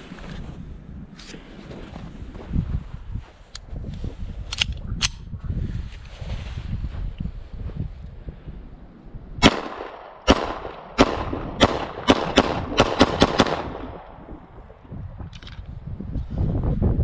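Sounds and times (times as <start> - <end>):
pistol shots: 9.4 - 14.2.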